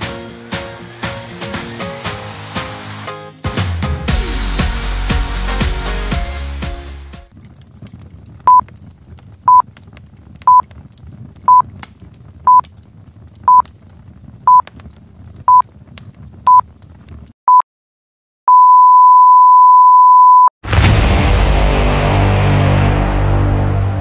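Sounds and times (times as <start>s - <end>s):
long steady beep: 18.5s - 20.5s
short beeps: 18.5s - 20.5s.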